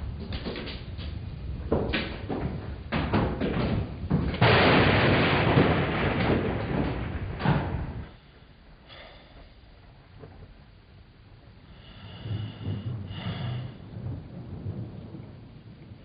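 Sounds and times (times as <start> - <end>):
thunder clap rumbling: 0.0 - 8.1, 11.8 - 16.0.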